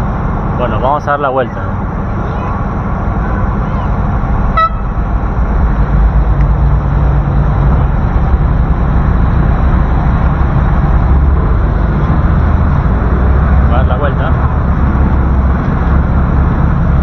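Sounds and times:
motorboat engine droning: 0:00.0 - 0:17.0.

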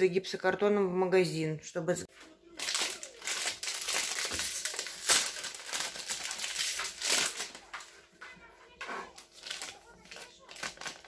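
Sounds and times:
plastic packaging crinkling: 0:02.6 - 0:08.0, 0:09.1 - 0:11.0.

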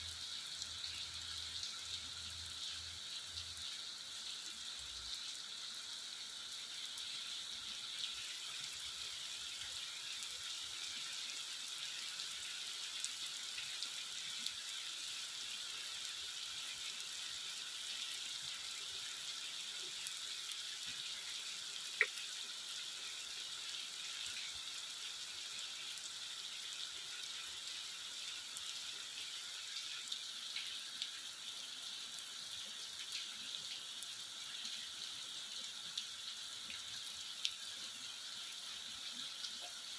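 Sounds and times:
running water: 0:00.0 - 0:39.9.

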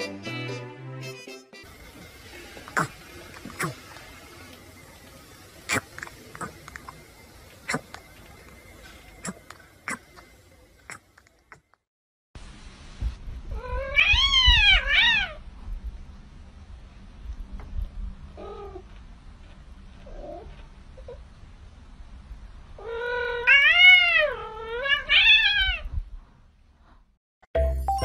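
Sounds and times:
cat meowing: 0:13.6 - 0:15.4.

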